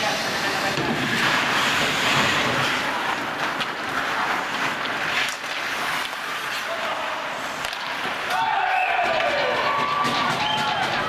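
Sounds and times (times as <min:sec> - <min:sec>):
skates scraping on ice: 0:00.0 - 0:11.0
sticks and ball clacking: 0:03.2 - 0:11.0.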